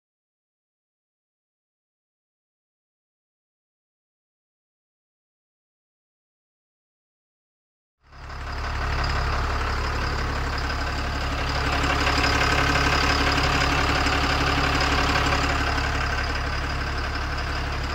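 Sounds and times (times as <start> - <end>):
truck diesel engine idling: 8.1 - 17.9.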